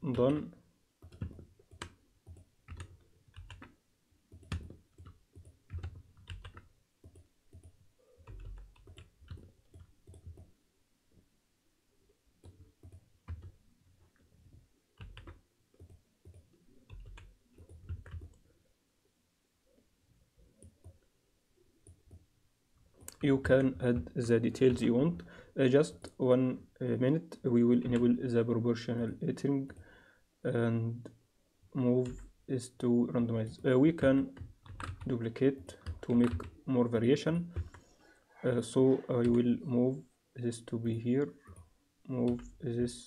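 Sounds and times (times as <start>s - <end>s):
computer mouse clicking: 15.0s - 18.4s.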